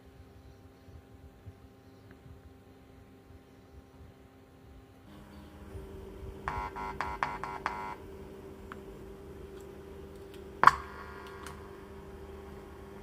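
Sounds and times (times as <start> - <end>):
low steady hum: 0.0 - 13.0
electronic beeps: 6.4 - 8.3.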